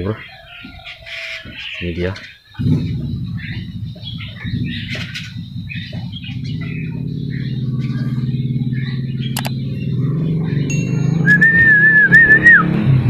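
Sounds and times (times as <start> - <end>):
bird chirps: 0.0 - 12.6
low engine hum: 2.6 - 13.0
sharp clicks: 9.3 - 9.6.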